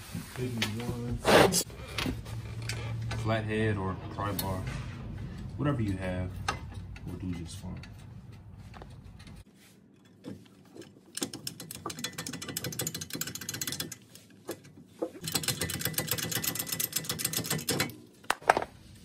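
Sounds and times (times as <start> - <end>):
socket ratchet clicking rapidly: 11.2 - 14.0, 15.2 - 17.9.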